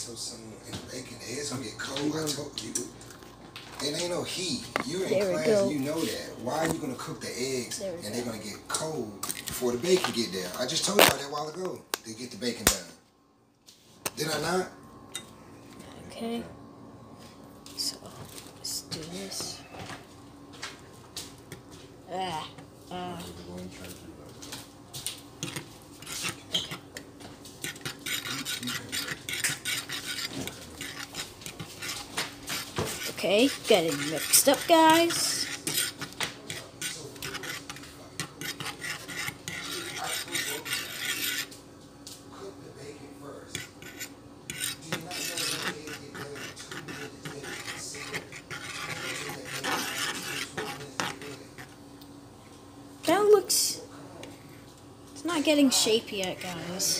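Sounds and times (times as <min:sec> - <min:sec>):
utensil clinking and scraping cookware: 0:27.6 - 0:41.5.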